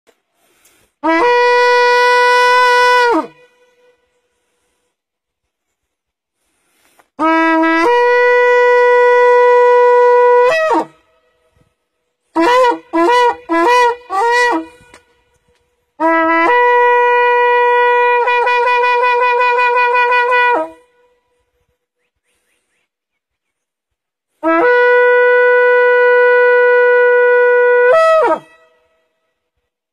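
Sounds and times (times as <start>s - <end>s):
shofar blasts: 1.0s - 4.2s, 7.2s - 15.4s, 16.0s - 21.4s, 24.4s - 29.4s.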